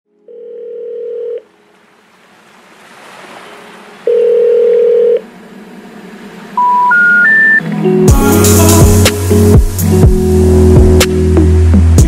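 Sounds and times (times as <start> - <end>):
low telephone beep: 4.1 - 5.2, 6.6 - 7.6.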